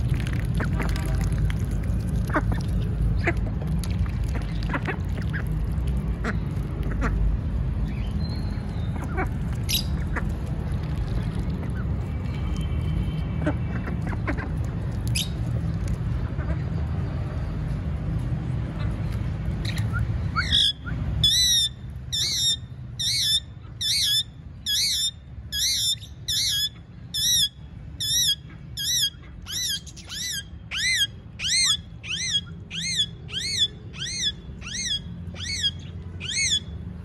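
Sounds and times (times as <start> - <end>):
parakeet squawking: 9.0 - 10.2, 19.7 - 36.7.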